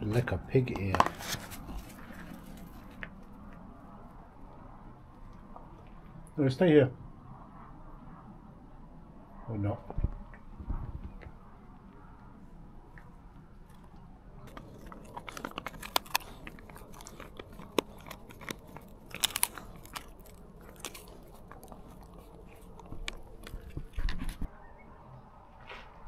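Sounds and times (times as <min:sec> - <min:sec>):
dog chewing and crunching: 0:00.0 - 0:06.4, 0:12.5 - 0:24.5.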